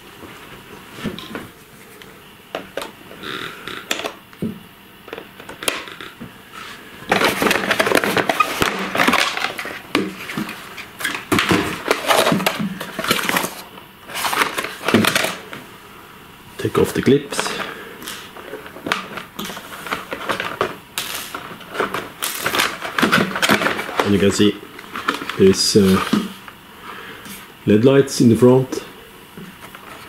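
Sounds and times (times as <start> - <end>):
cardboard crackling and rustling: 5.8 - 15.5.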